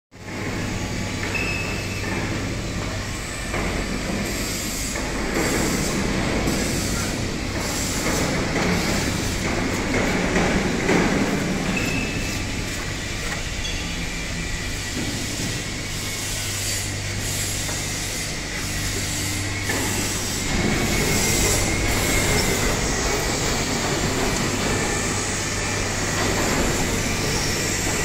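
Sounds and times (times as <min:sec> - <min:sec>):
machinery low hum: 0:00.2 - 0:28.0
rumbling rattling machinery: 0:00.2 - 0:28.0.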